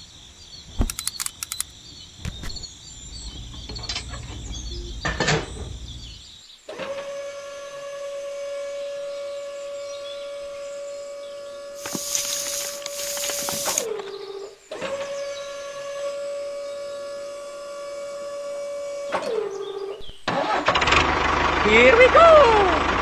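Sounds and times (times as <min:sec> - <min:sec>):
small electric motor whining: 0:06.7 - 0:19.9
hissing rush: 0:11.8 - 0:13.9.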